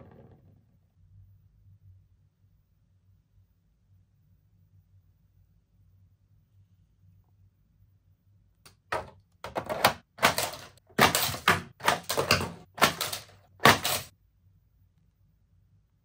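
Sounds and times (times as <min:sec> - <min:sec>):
plastic toy clacks and rattles: 0:08.9 - 0:14.1.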